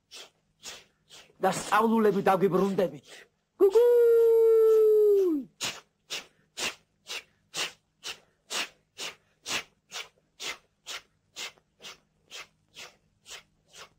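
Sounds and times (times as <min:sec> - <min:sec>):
person making mouth chuffing puffs: 0:00.0 - 0:01.7, 0:05.2 - 0:13.9.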